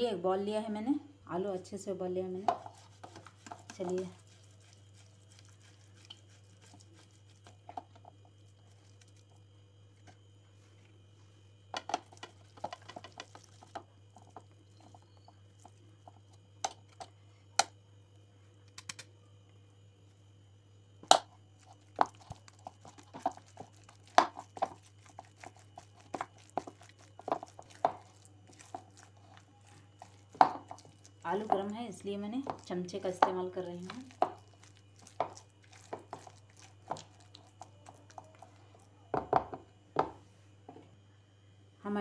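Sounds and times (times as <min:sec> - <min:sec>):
potatoes being mashed: 0:02.4 - 0:09.4, 0:11.8 - 0:17.2, 0:21.0 - 0:40.1.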